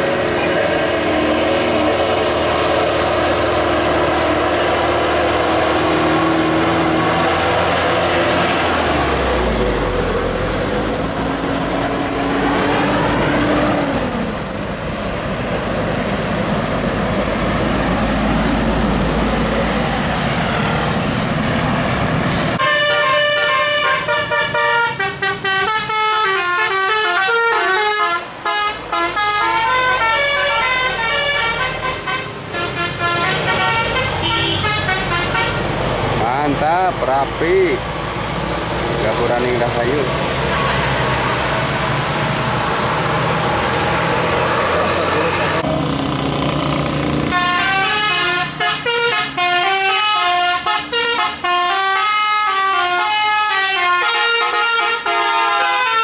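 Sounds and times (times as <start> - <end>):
heavy bus and truck engines: 0.0 - 56.0
musical bus air horn: 22.6 - 35.7, 47.3 - 56.0.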